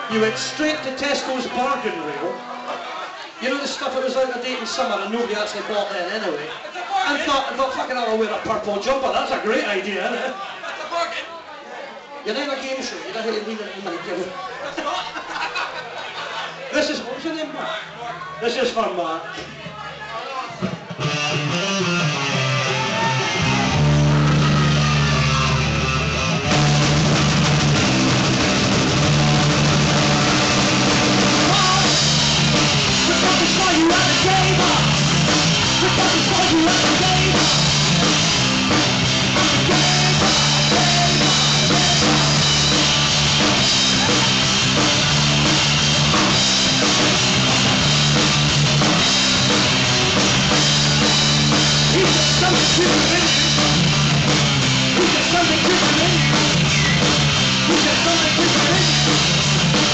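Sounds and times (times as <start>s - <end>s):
live rock band playing: 0.0s - 3.2s, 20.5s - 59.9s.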